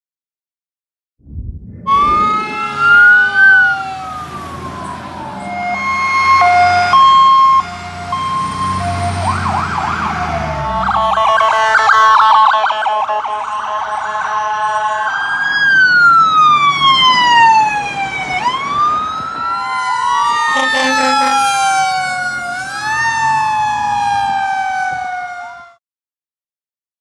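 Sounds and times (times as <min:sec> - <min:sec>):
emergency vehicle sirens wailing: 0:01.8 - 0:25.8
short horn blast: 0:20.5 - 0:22.1.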